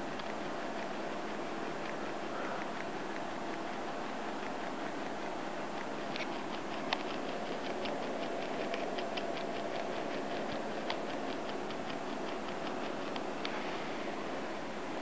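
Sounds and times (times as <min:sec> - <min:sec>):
steady hiss: 0:11.6 - 0:15.0.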